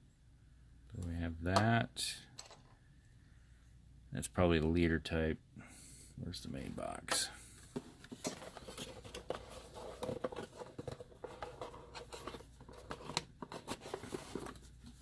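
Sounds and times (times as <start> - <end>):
packaging rustling: 8.0 - 15.0.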